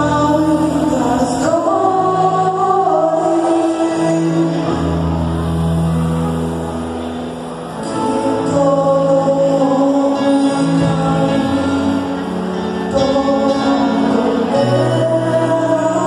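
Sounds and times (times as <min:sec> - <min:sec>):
choir singing long notes: 0:00.0 - 0:16.0.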